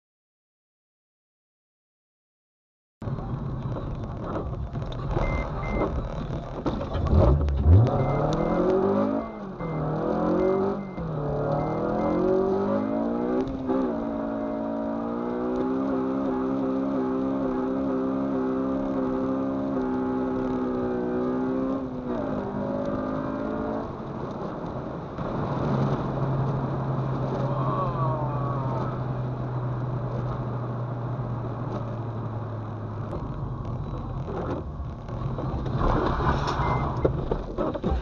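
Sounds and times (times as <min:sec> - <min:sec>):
tyre noise on wet road: 0:03.0 - 0:17.6, 0:18.7 - 0:38.0
car engine drone: 0:03.0 - 0:38.0.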